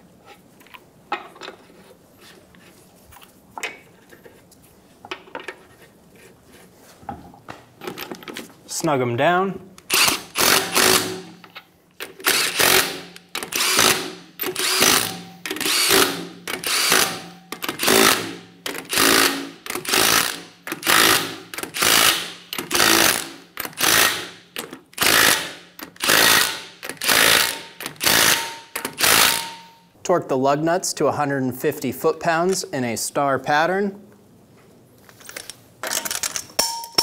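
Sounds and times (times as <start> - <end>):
impact wrench hammering bursts: 9.9 - 11.4, 12.2 - 29.8.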